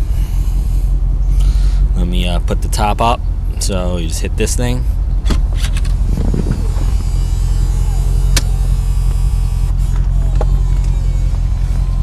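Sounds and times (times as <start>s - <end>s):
motor humming: 0.0s - 2.0s, 4.9s - 12.0s.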